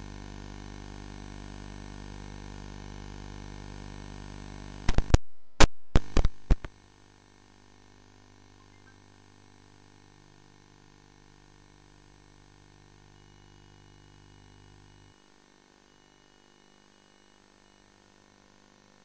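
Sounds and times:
electrical hum and hiss: 0:04.7 - 0:06.7
sharp digital clicks: 0:04.9 - 0:06.7.

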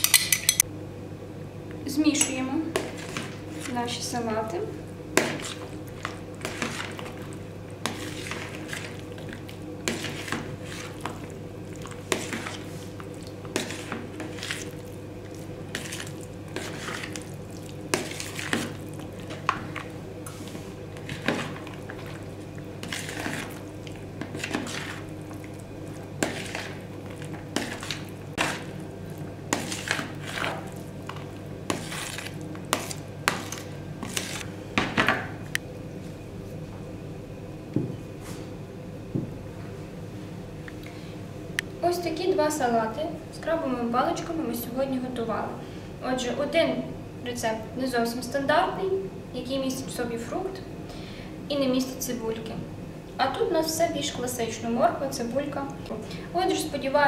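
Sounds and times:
spoon scraping plastic bowl: 0:11.8 - 0:14.8, 0:15.7 - 0:17.3, 0:22.8 - 0:23.6, 0:24.2 - 0:25.4, 0:26.2 - 0:28.7, 0:29.5 - 0:34.5.

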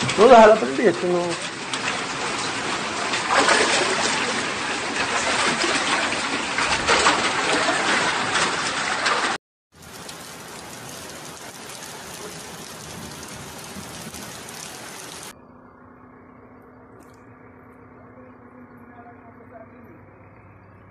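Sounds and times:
heavy rain pouring: 0:00.0 - 0:15.3
running floodwater: 0:00.0 - 0:15.3.

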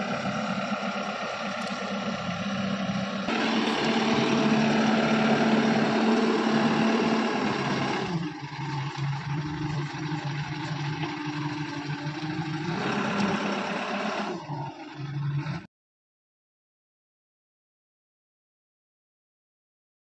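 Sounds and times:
backhoe diesel engine running: 0:00.0 - 0:15.7
backhoe scraping: 0:00.0 - 0:15.7.

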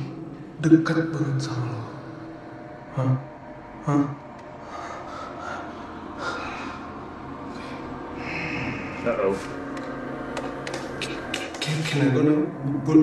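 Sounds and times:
person breathing hard: 0:04.6 - 0:09.1.

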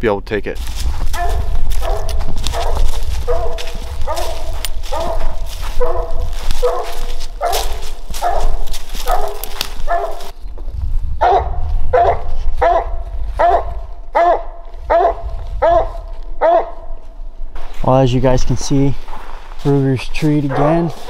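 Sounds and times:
dog barking: 0:01.1 - 0:10.3, 0:11.2 - 0:17.0, 0:20.4 - 0:21.0.

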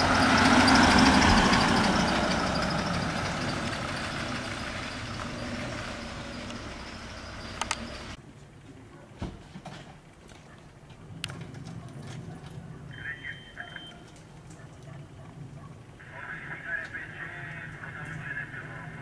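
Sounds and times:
van engine pulling away: 0:00.0 - 0:08.2.

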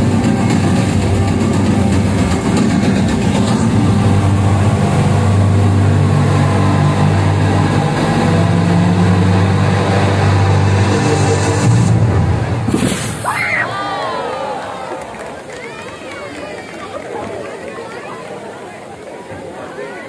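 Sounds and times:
low sustained tones: 0:00.0 - 0:12.8
water cascading down walls: 0:00.0 - 0:20.0.

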